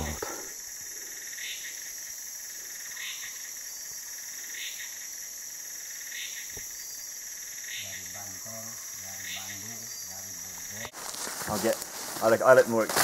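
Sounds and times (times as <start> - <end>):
high-pitched insect drone: 0.0 - 10.9
short repeating insect call: 0.0 - 13.0.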